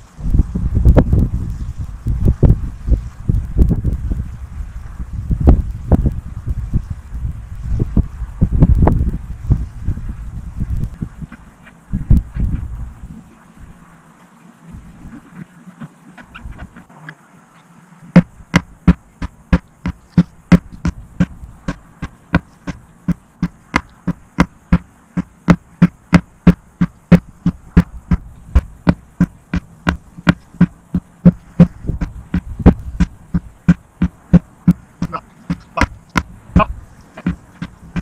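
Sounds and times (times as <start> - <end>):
sledgehammer thudding on rubber tire: 18.2 - 38.0.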